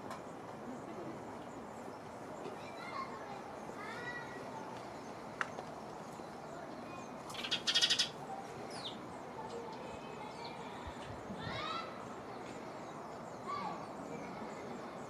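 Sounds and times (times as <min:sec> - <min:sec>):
bird rattling chatter: 0:07.3 - 0:08.2.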